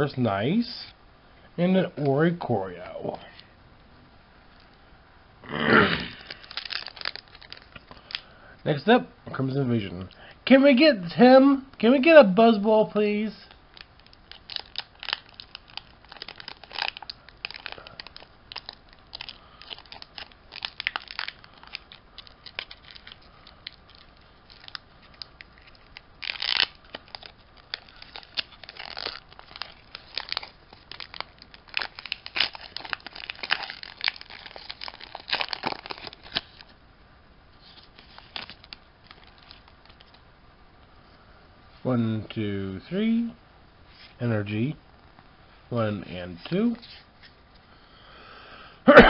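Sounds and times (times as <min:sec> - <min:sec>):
foil wrapper tearing and crinkling: 0:06.2 - 0:08.2, 0:13.5 - 0:36.7, 0:37.6 - 0:40.2.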